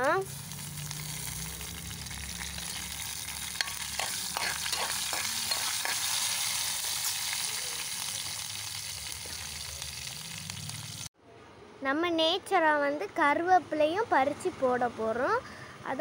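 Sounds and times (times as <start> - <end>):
spices sizzling in hot oil: 0.0 - 11.1.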